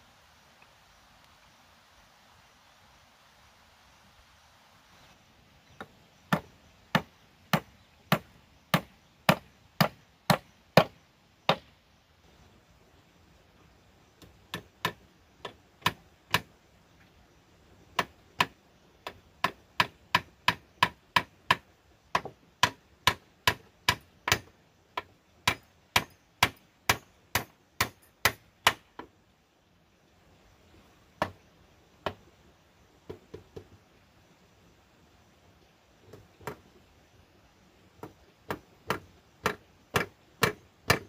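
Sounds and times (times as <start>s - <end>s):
hammer knocking on wood: 5.8s - 10.9s, 33.1s - 33.7s, 38.0s - 41.0s.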